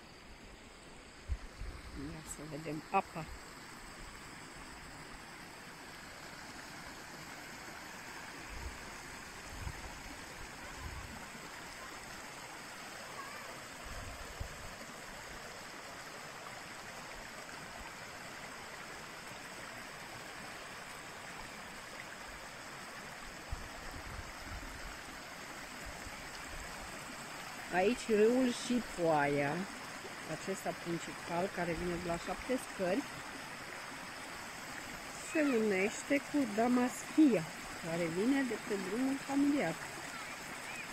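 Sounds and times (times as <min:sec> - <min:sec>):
stream rushing over stones: 0:00.0 - 0:40.9.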